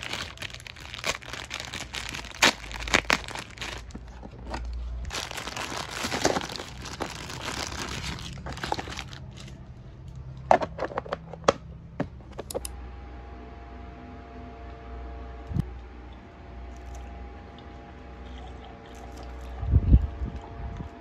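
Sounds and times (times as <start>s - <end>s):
plastic wrappers crinkling: 0.0s - 9.6s.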